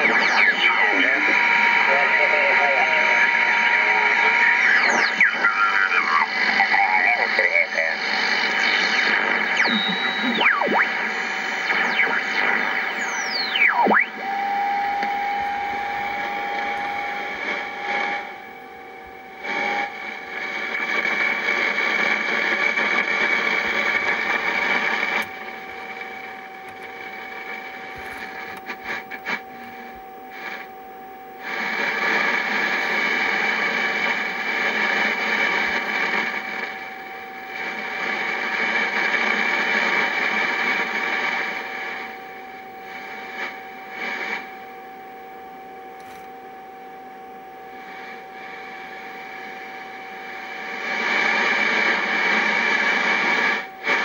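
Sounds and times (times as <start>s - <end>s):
radio static hiss: 0.0s - 54.0s
radio whistles sweeping down: 8.0s - 18.3s
steady whistle tone: 9.4s - 18.4s.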